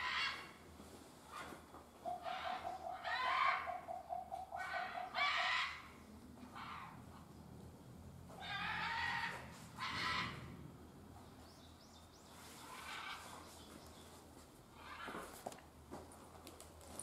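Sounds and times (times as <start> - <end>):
animal calls echoing: 0.0 - 0.6, 1.3 - 7.3, 8.3 - 10.7
low steady hum: 0.0 - 17.0.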